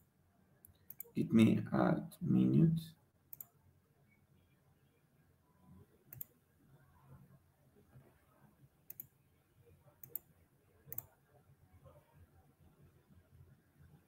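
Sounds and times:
computer mouse clicking: 0.6 - 1.1, 3.3 - 3.6, 6.1 - 6.4, 8.9 - 9.2, 10.0 - 10.3, 10.9 - 11.1.

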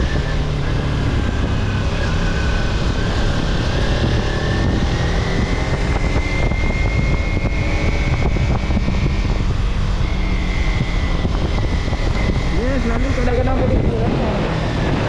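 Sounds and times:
vehicle driving on highway: 0.0 - 15.0
faint high whine: 5.5 - 14.3.

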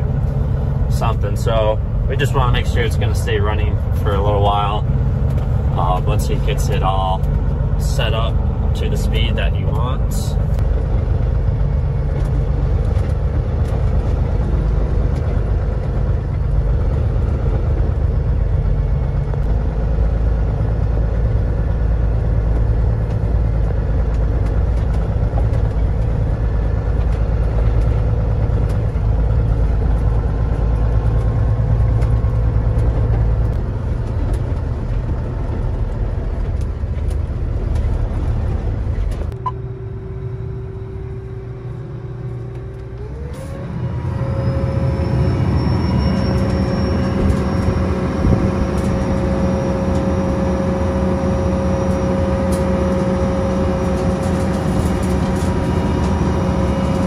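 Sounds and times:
idling combine cab hum: 0.0 - 57.0
tractor engine drone with rattle: 0.0 - 57.0.

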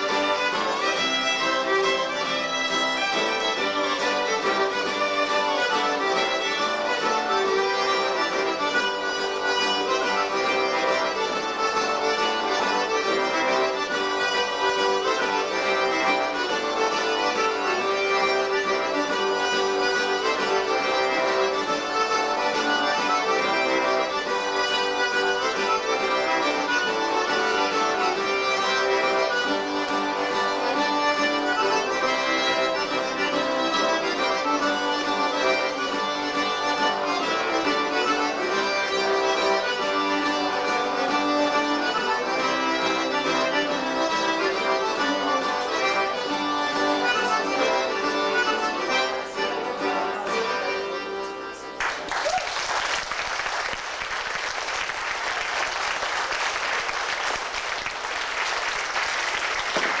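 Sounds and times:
accordion fiddle and guitar band: 0.0 - 52.1, 52.9 - 60.0
audience applause: 51.8 - 60.0.

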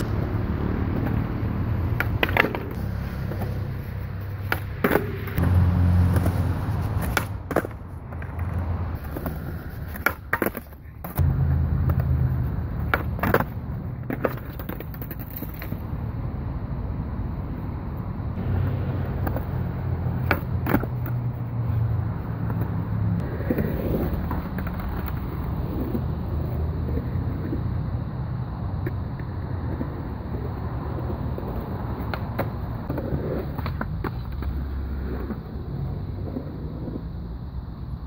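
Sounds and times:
skateboard wheels rolling on concrete: 0.0 - 38.0
skateboard clacking on concrete: 0.9 - 5.4, 6.1 - 11.2, 11.9 - 15.8, 19.2 - 27.6, 28.8 - 35.4.

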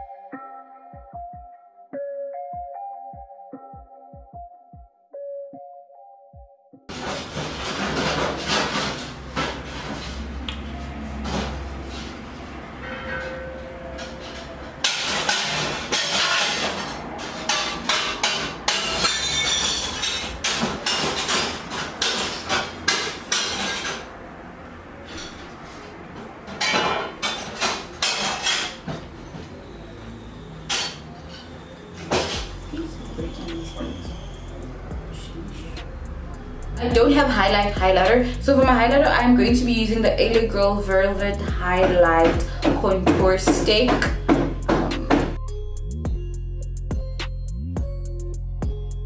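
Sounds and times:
hammering and clattering: 6.9 - 10.3, 12.9 - 24.1, 26.4 - 29.5, 40.3 - 45.4.

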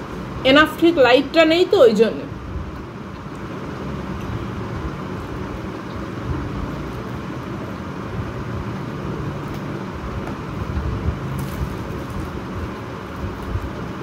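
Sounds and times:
low rumbling background noise: 0.0 - 14.0
fried bread tearing: 11.3 - 14.0.

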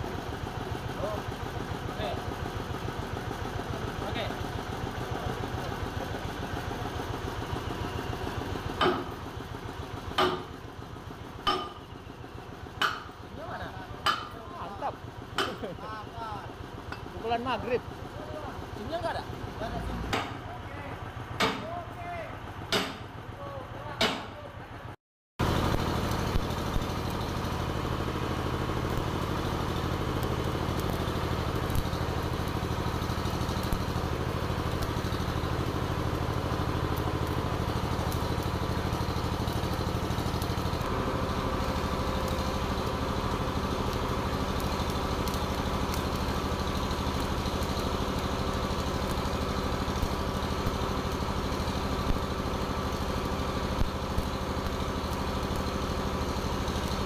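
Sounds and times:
engine running steadily: 0.0 - 57.0
arc welding crackle: 25.4 - 57.0.

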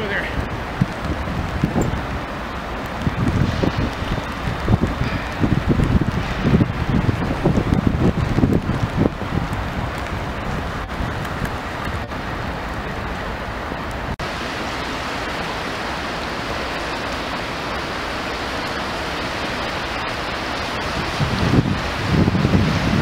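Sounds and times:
wind on microphone: 0.0 - 14.4, 20.0 - 23.0
fast-flowing river rushing: 0.0 - 23.0.

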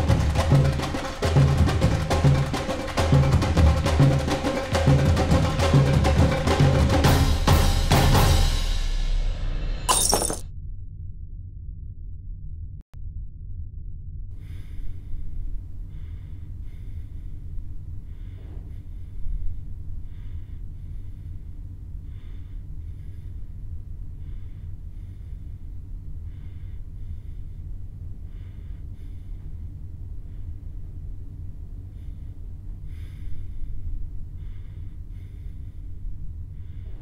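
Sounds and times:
steady low hum: 9.9 - 37.0
person breathing heavily: 14.4 - 37.0.

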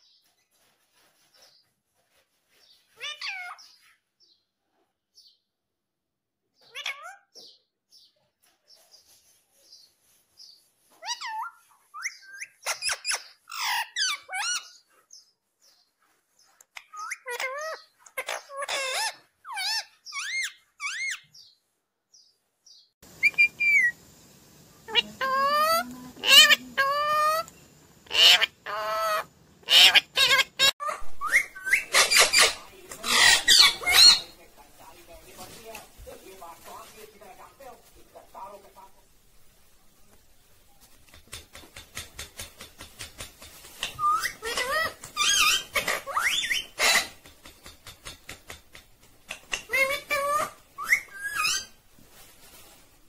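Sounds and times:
parakeet squawking: 6.7 - 7.3, 16.8 - 21.2, 24.9 - 27.5, 28.1 - 34.4, 44.0 - 47.2.

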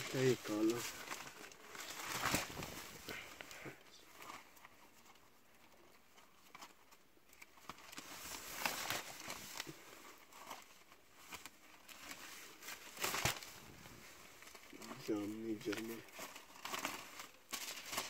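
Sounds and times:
paper sheets rustling: 0.0 - 5.3, 6.2 - 18.0.

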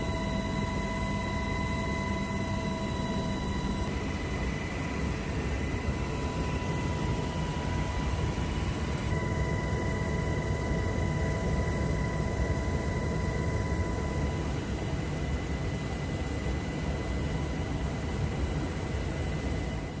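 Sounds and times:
thin high whine: 0.0 - 14.7
helicopter rotor and engine noise: 0.0 - 20.0.

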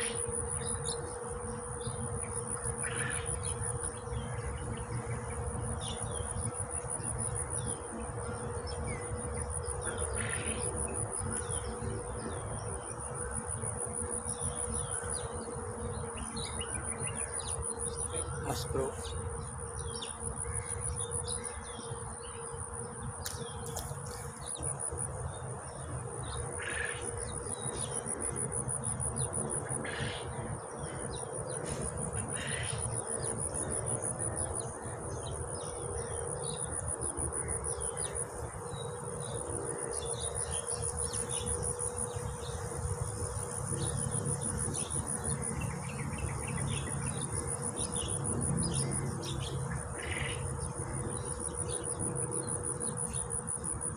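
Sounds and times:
insect trilling: 16.5 - 19.4.

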